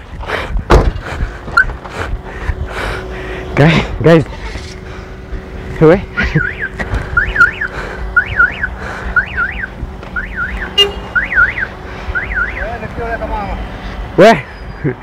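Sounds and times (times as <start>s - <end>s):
low traffic rumble: 0.0s - 15.0s
car alarm siren: 6.2s - 12.8s.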